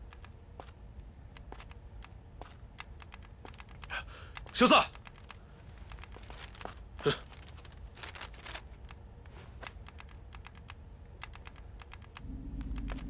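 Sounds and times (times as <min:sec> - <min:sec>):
keys clicking: 0:09.6 - 0:13.0.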